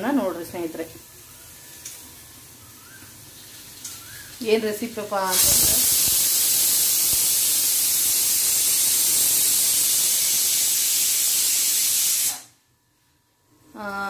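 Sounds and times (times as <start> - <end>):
pressure cooker whistle hissing: 5.2 - 12.6.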